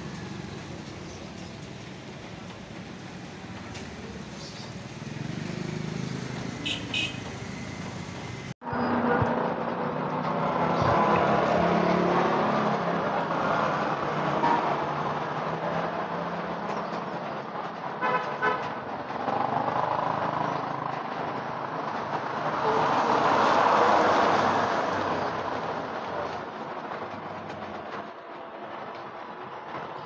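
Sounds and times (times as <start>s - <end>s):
motor vehicles passing: 0.0s - 28.2s.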